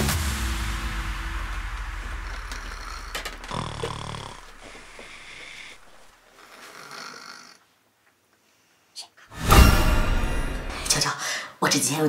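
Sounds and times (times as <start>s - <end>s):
man snoring: 1.9s - 7.6s
soft breathy breaths: 2.0s - 7.6s.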